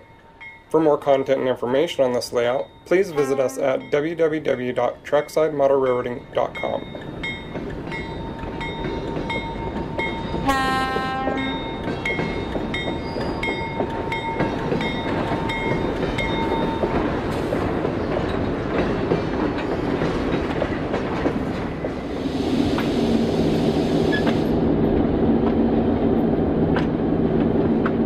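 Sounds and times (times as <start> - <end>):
locomotive bell ringing: 0.0 - 17.0
short horn blast: 3.1 - 3.9, 10.4 - 11.6.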